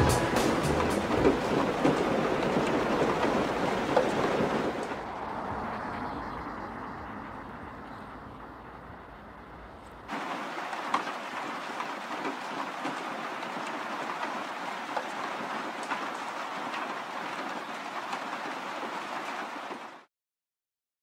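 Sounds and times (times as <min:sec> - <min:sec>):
raindrops ticking: 0:00.0 - 0:06.1, 0:10.1 - 0:20.1
steady rain falling: 0:00.0 - 0:09.2, 0:10.1 - 0:20.1.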